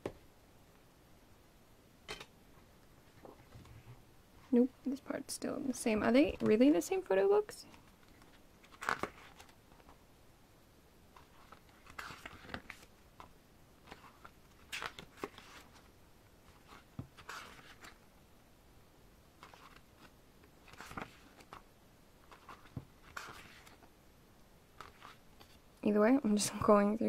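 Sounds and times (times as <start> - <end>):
book pages turning: 7.7 - 10.0, 11.1 - 18.0, 19.4 - 23.9, 24.8 - 25.6.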